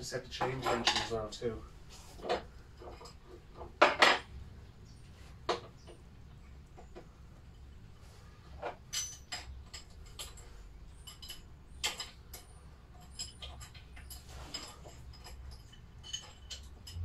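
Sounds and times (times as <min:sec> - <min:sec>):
metal clicks of spanner and bolts: 0:08.9 - 0:17.0.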